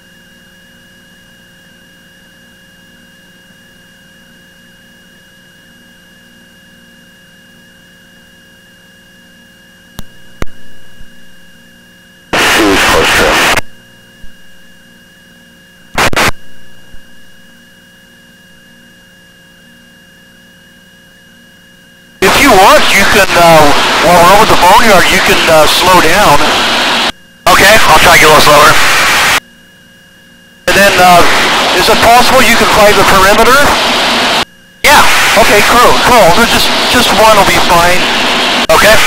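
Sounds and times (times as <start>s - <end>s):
faint whine tones: 0.0s - 39.0s
electrical hum: 9.9s - 39.0s
harsh bursts of radio noise: 12.4s - 13.7s, 15.9s - 16.4s, 22.2s - 29.4s, 30.7s - 39.0s.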